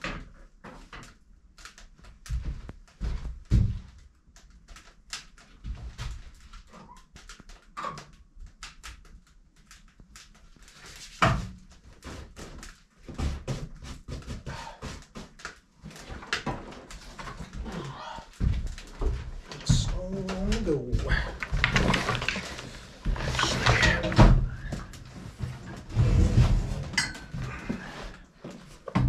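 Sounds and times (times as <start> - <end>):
clicks and clatter of handling gear: 21.2 - 24.2.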